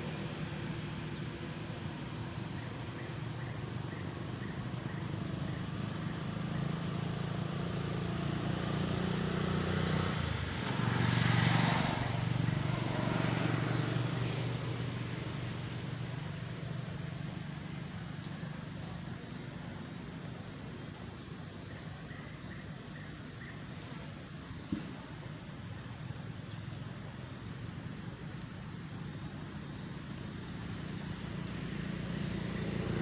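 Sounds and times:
vehicle engine passing: 0:05.2 - 0:18.2, 0:30.0 - 0:33.0.

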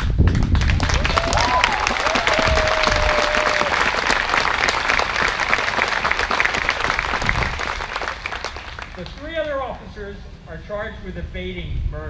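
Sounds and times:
crowd applauding: 0:00.2 - 0:09.6.

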